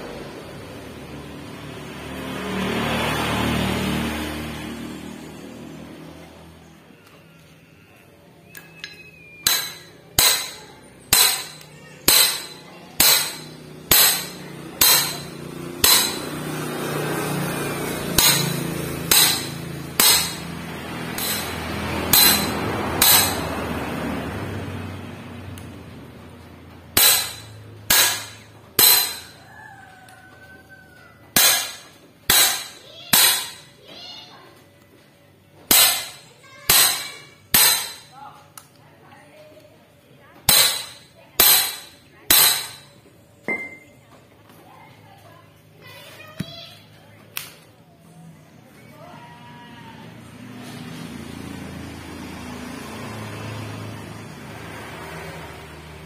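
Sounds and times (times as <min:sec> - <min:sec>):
steel tools tapping metal: 0:08.5 - 0:16.6, 0:18.0 - 0:23.6, 0:27.0 - 0:29.5, 0:31.3 - 0:33.8, 0:35.7 - 0:38.2, 0:40.5 - 0:43.9.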